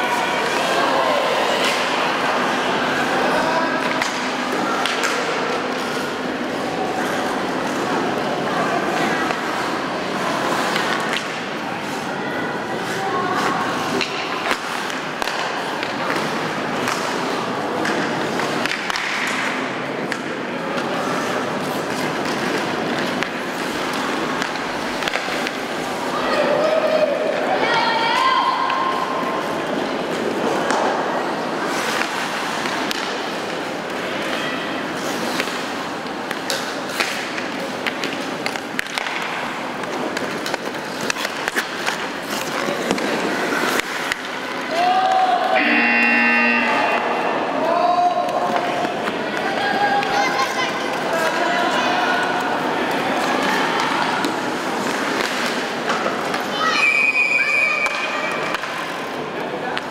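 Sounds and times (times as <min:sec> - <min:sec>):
murmur of voices: 0:00.0 - 0:59.9
hockey sticks and puck clacking: 0:00.4 - 0:08.2, 0:08.9 - 0:12.1, 0:12.8 - 0:27.5, 0:28.6 - 0:31.0, 0:31.7 - 0:47.2, 0:48.0 - 0:51.5, 0:52.2 - 0:56.9, 0:57.8 - 0:59.9
skates scraping ice: 0:00.4 - 0:27.6, 0:28.8 - 0:45.6, 0:52.2 - 0:56.6
skates scraping on ice: 0:01.4 - 0:12.1, 0:31.6 - 0:44.8.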